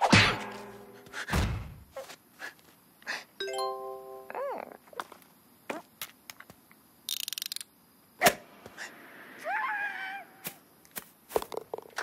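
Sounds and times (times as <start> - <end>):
thud: 0.0 - 1.9.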